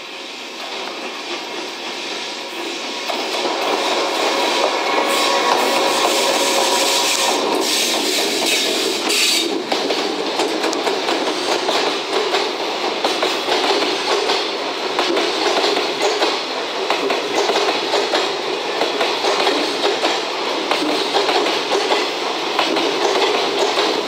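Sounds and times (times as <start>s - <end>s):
train wheels clickety-clack: 0.0s - 24.0s
high hiss: 1.7s - 9.6s.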